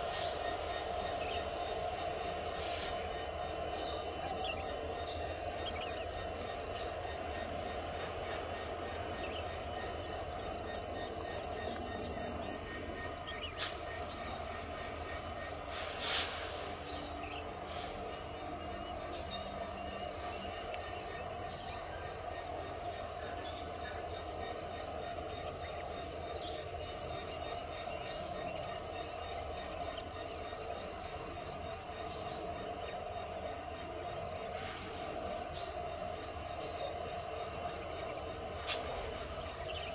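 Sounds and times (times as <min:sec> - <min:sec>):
distant diesel locomotives rumbling: 0:00.0 - 0:20.7
insects chirping: 0:00.0 - 0:39.9.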